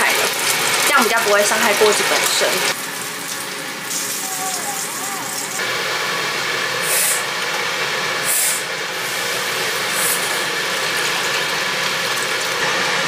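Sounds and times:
water pouring: 0.0 - 5.6, 9.0 - 12.6
water sizzling in hot wok: 0.0 - 13.0.

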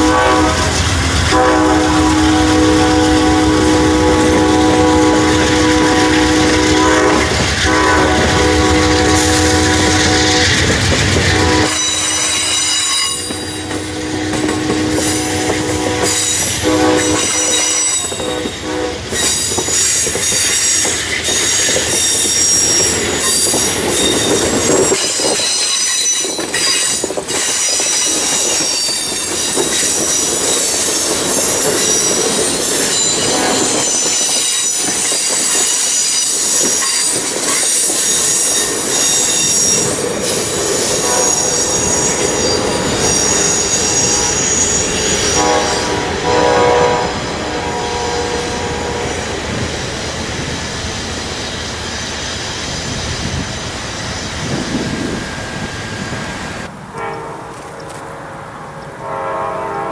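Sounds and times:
train wheels rumbling on rails: 0.0 - 59.9
high-pitched wheel squeal: 11.3 - 46.0.

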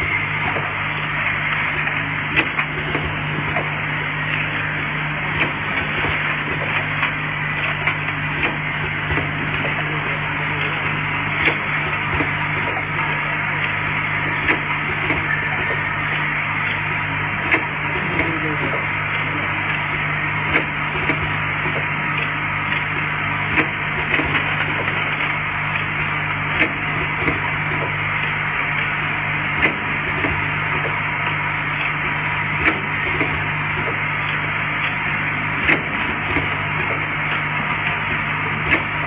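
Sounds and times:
machine knocking: 0.0 - 39.0
motor hum: 0.0 - 39.0.

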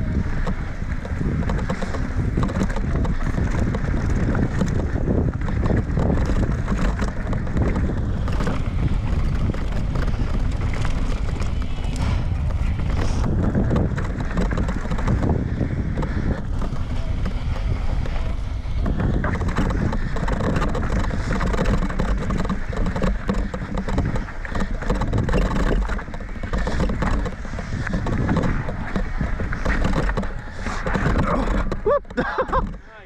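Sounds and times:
bike rattling: 0.0 - 33.0
tyres rumbling over dirt and rock: 0.0 - 33.0
wind buffeting on microphone: 0.0 - 33.0.

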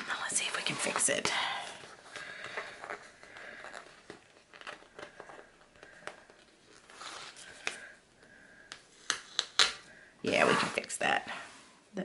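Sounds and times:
paper rustling and crinkling: 0.4 - 8.0.

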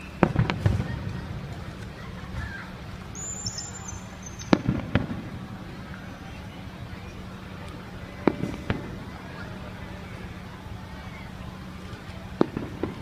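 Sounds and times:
firework shells bursting: 4.4 - 5.4.

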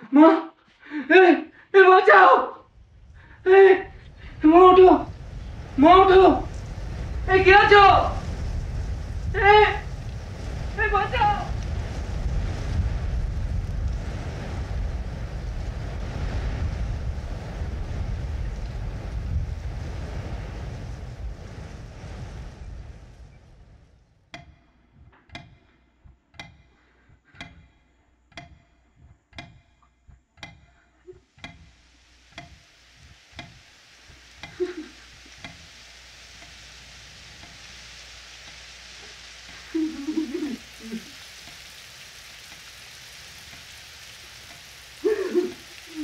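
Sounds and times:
steady hiss: 0.0 - 46.0
wall clock ticking: 24.3 - 32.7, 33.3 - 33.6, 34.2 - 35.8, 37.4 - 37.7.

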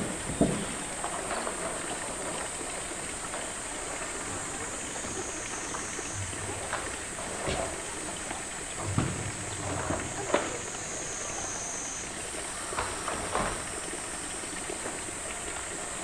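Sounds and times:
knocks on hollow plastic tank: 0.0 - 1.0, 8.8 - 10.5
steady high hiss: 0.0 - 16.0.

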